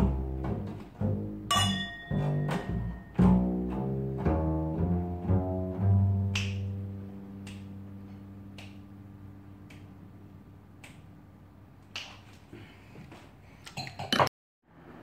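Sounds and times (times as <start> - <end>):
plucked double bass note: 0.0 - 10.6
finger snaps: 6.2 - 9.0, 9.6 - 10.1, 10.7 - 11.2, 11.8 - 12.3.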